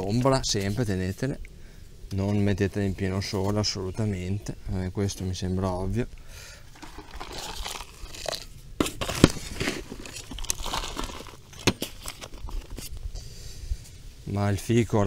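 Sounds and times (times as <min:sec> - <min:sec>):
trowel scraping soil: 0:06.7 - 0:13.0.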